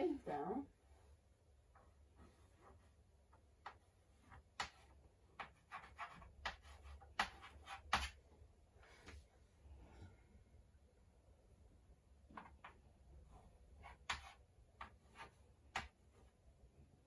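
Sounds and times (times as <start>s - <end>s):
chalk tapping and scratching: 2.2s - 8.2s, 12.3s - 16.4s.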